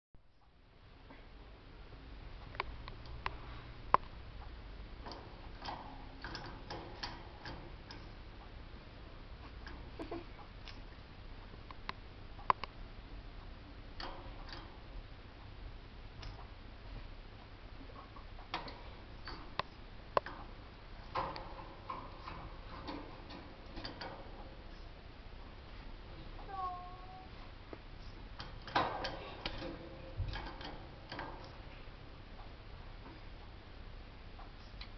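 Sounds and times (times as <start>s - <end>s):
canary clicking on cage: 5.0s - 8.1s, 21.1s - 24.5s, 28.4s - 31.6s.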